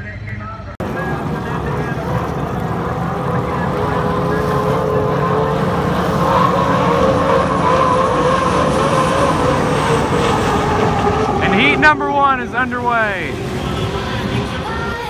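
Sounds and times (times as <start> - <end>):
turbine engines whining: 0.8 - 15.0.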